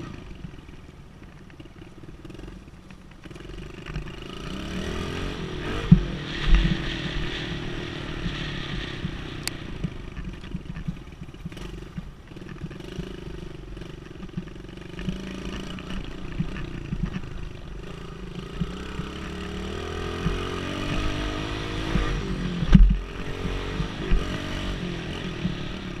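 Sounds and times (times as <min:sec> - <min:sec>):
dirt bike engine revving: 0:03.2 - 0:26.0
sharp knocks from rough ground: 0:05.1 - 0:07.4, 0:13.8 - 0:25.6.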